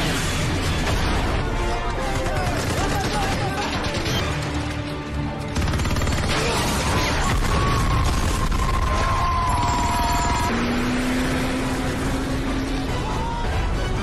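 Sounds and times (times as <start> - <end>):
film music score: 0.0 - 14.0.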